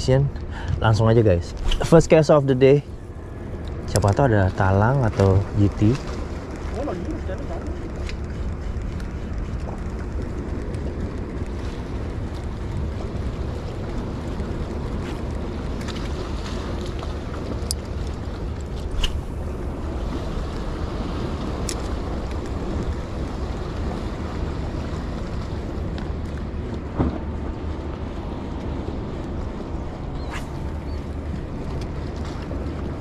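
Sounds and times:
wind noise on microphone: 0:00.0 - 0:33.0
boat engine idling: 0:02.6 - 0:15.8.

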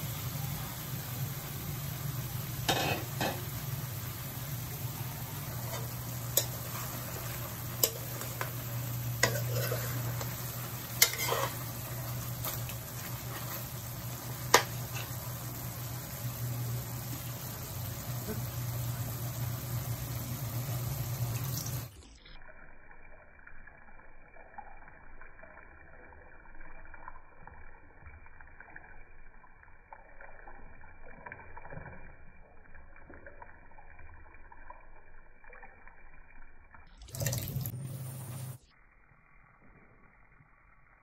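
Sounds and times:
steady hiss with low hum: 0:00.0 - 0:22.8, 0:36.9 - 0:41.0
water trickling into wok: 0:00.0 - 0:38.6.

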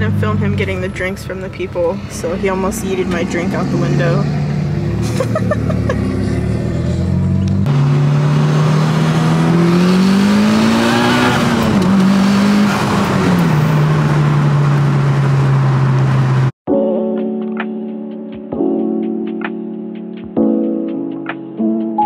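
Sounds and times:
car engine from inside cabin: 0:00.0 - 0:16.5
road noise: 0:00.0 - 0:16.6.

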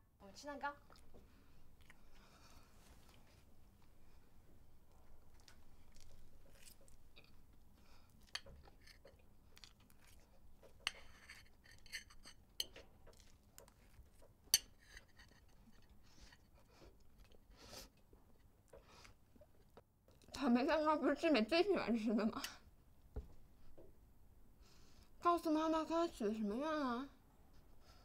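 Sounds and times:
soft chewing: 0:00.7 - 0:20.5
fork clinking and scraping on plate: 0:10.9 - 0:12.8.

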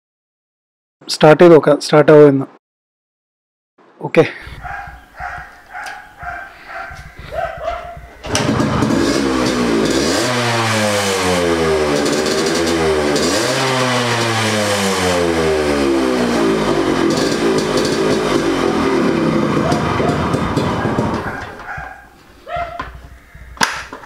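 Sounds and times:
two-stroke motorcycle engine revving: 0:04.7 - 0:22.1.

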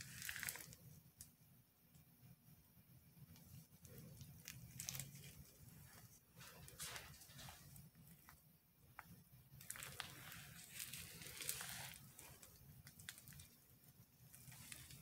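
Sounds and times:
plastic bag crinkling: 0:00.0 - 0:00.8, 0:03.8 - 0:08.4, 0:09.6 - 0:13.6, 0:14.2 - 0:15.0.

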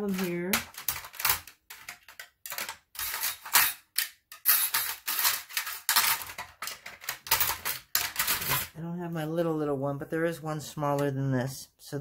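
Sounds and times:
small tools clattering: 0:00.0 - 0:08.8.

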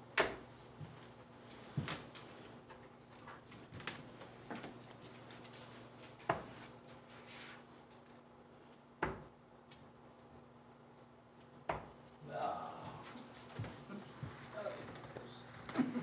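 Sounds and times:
low room hum: 0:00.0 - 0:16.0
darts hitting dartboard: 0:09.0 - 0:09.3, 0:11.7 - 0:12.0.

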